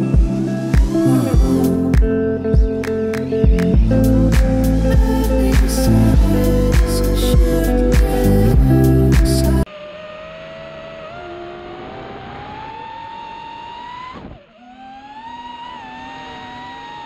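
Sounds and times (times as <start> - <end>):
music: 0.0 - 9.7
drone propellers whining: 0.0 - 17.0.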